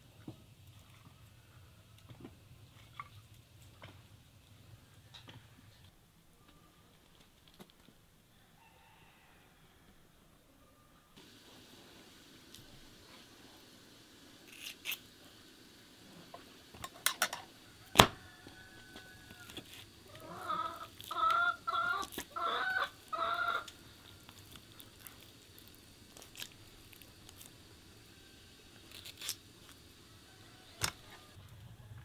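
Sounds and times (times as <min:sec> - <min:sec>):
chicken clucking: 0:20.1 - 0:23.8.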